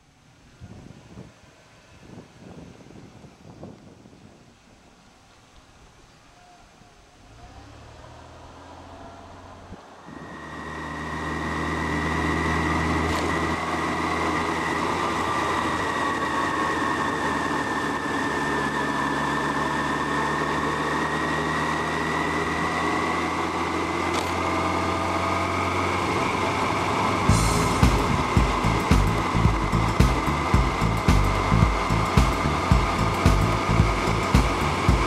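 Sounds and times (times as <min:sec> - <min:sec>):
motorcycle engine running: 0:07.2 - 0:35.0
high whine: 0:08.7 - 0:35.0.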